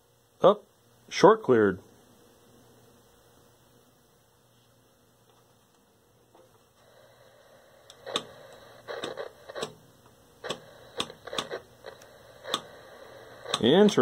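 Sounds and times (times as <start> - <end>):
electrical arcing snaps and crackles: 7.8 - 14.0.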